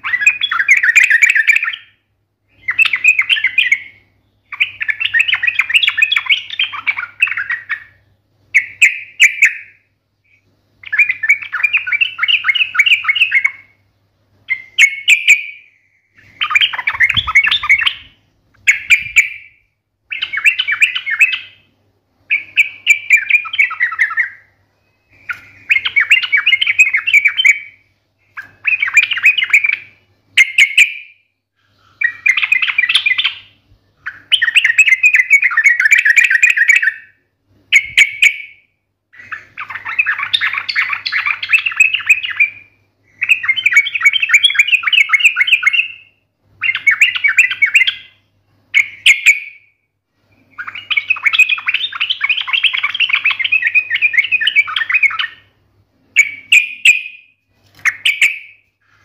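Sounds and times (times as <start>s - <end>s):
bird singing chattering notes: 0.0s - 13.8s, 14.5s - 21.7s, 22.3s - 31.2s, 32.0s - 37.1s, 39.2s - 49.7s, 50.4s - 55.5s, 56.2s - 58.6s.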